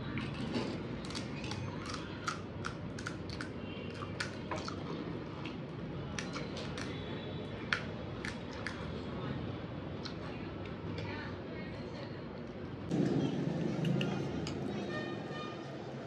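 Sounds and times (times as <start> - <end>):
fried shells crunching: 0.0 - 4.9.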